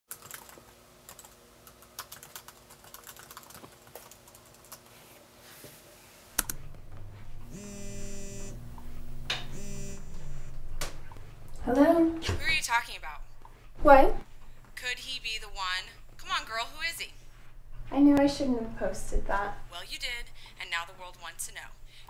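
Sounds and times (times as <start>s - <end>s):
computer keyboard typing: 0.1s - 4.9s
sharp click: 6.4s - 6.6s.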